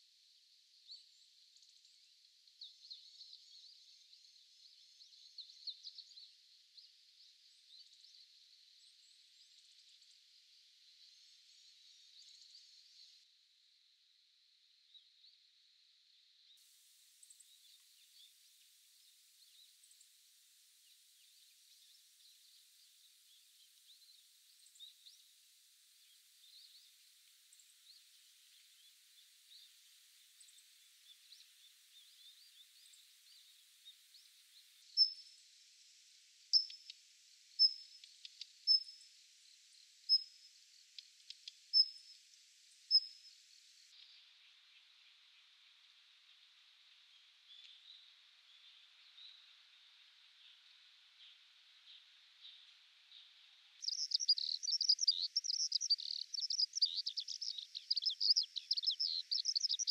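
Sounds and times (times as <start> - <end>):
distant bird twittering: 53.8 - 59.9.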